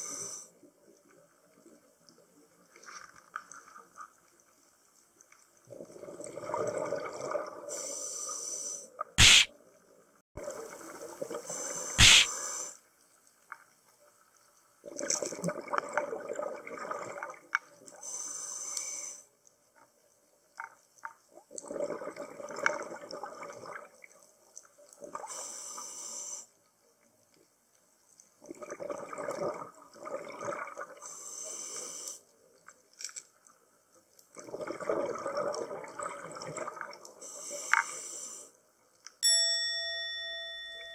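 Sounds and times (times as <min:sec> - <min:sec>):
sharp clicks: 0:09.2 - 0:09.5
exhalation bubbles: 0:21.6 - 0:23.8, 0:34.4 - 0:36.9.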